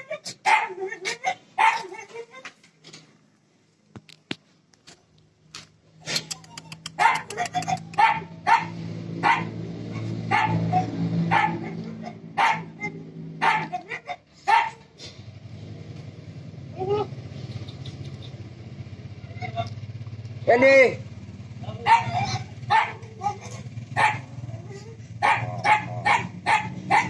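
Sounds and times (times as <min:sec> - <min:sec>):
dog barking: 0:00.4 - 0:02.0, 0:06.9 - 0:14.9, 0:21.8 - 0:27.0.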